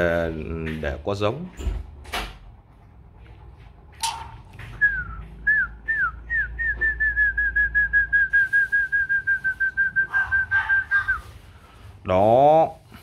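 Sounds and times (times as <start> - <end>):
person whistling: 4.8 - 11.3.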